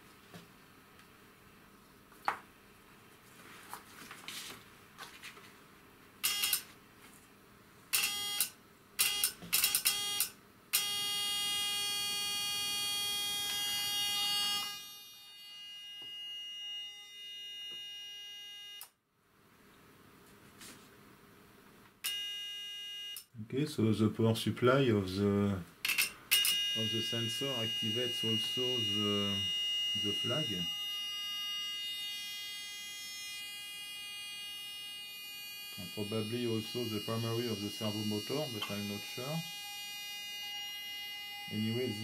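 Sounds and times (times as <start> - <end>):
electrical buzz: 9.9 - 18.5, 26.6 - 42.0.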